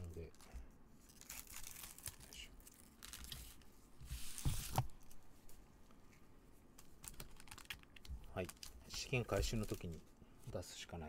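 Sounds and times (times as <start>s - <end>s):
wrapper crinkling and rustling: 0.0s - 3.6s, 6.7s - 10.0s.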